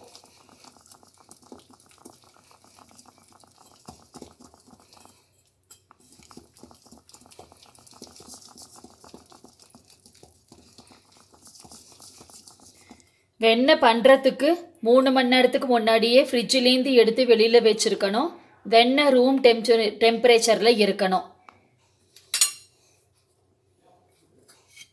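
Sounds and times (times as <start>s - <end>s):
fingers squishing butter in bowl: 0.0s - 13.1s.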